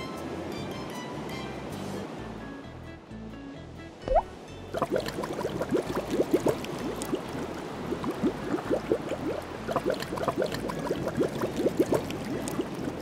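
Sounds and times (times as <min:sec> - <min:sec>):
water sloshing around a net: 0:04.8 - 0:13.0.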